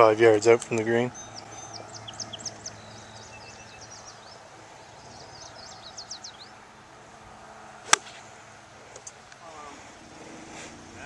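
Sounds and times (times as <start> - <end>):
birds chirping: 0.0 - 11.0
steady outdoor noise: 0.0 - 11.0
golf club striking ball: 7.8 - 8.3.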